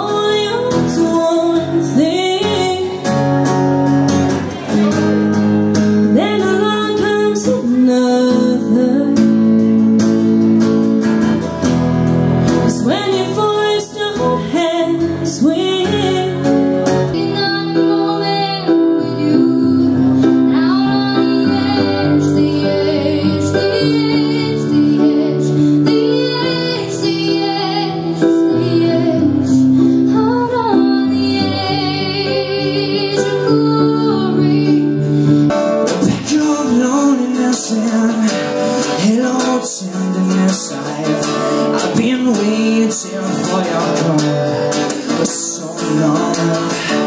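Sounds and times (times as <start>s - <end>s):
woman singing: 0.0s - 3.3s, 6.0s - 9.5s, 12.7s - 35.1s
strummed acoustic guitar: 0.0s - 47.0s.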